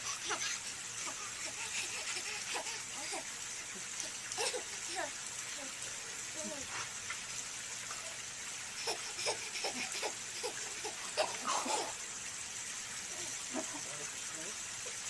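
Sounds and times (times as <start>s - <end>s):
baby giggling and squealing: 0.0s - 3.3s, 8.8s - 12.0s
background hiss: 0.0s - 15.0s.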